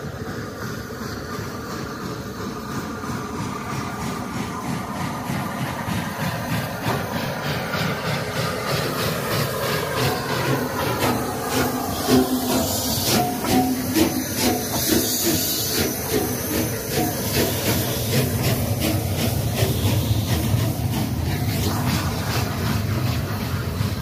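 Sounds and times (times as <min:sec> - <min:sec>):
steam locomotive hissing and beating: 0:00.0 - 0:24.0
train coaches rolling past: 0:00.0 - 0:24.0.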